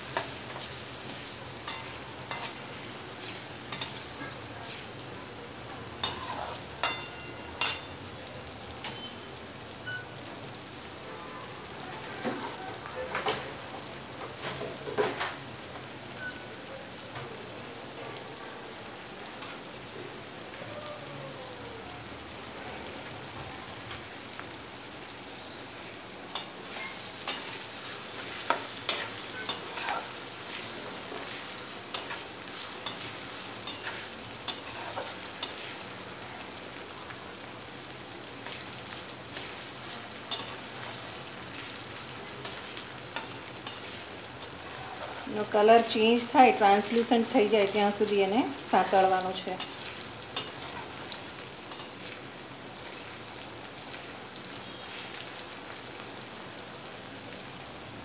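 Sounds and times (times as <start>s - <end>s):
onions sizzling in hot oil: 0.0s - 58.0s
spatula scraping a metal pan: 6.0s - 7.1s, 28.4s - 30.2s, 31.9s - 35.6s, 43.2s - 45.3s.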